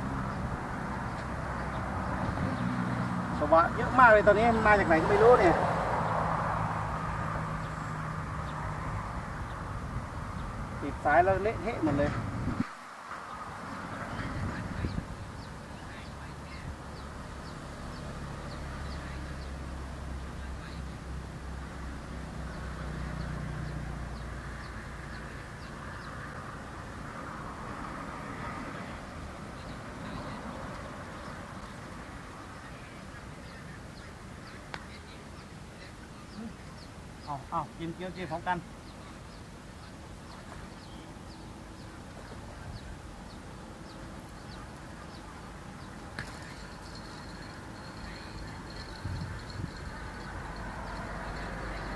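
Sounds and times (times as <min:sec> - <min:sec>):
outdoor background noise: 0:00.0 - 0:51.9.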